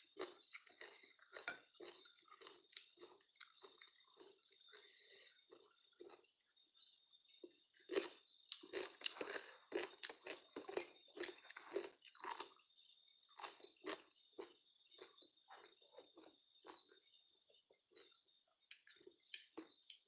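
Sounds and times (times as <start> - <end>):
person chewing crunchy food: 0.0 - 6.4, 7.3 - 20.0.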